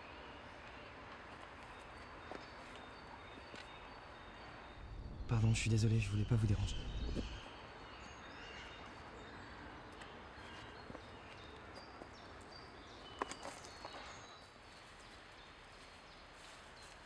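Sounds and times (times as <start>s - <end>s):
steady low hiss: 4.4s - 8.4s.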